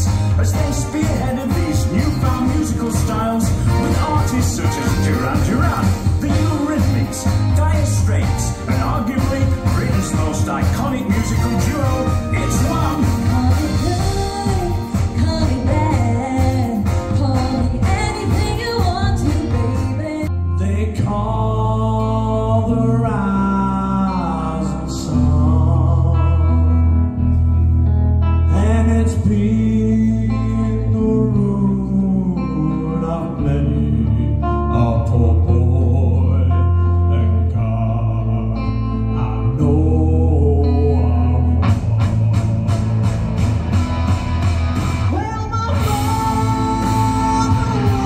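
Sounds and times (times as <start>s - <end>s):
man singing over bass line: 0.0s - 27.2s, 28.4s - 43.5s, 45.1s - 48.0s
live pop music with singing: 0.0s - 27.4s, 28.5s - 48.0s.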